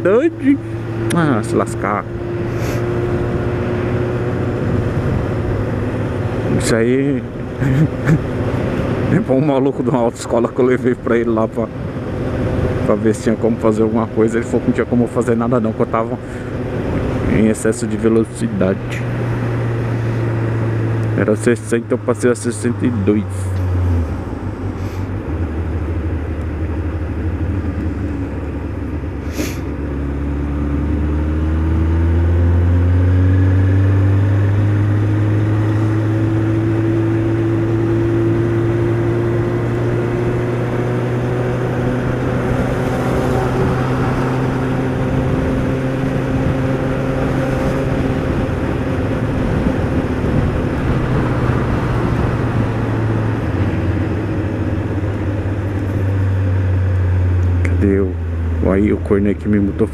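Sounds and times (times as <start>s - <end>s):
wind and road noise: 0.0s - 59.9s
motorcycle engine running: 14.3s - 59.9s.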